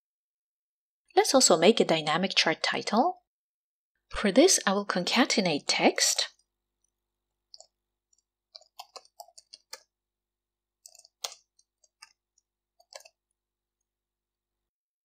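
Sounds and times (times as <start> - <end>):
keyboard typing: 7.5 - 9.9, 10.8 - 13.3.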